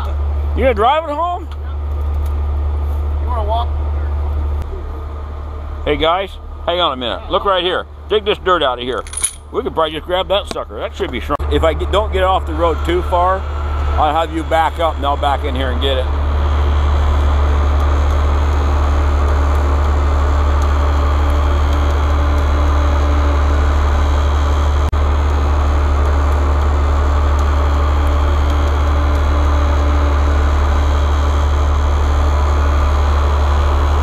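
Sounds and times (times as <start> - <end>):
diesel engine idling: 0.0 - 34.0.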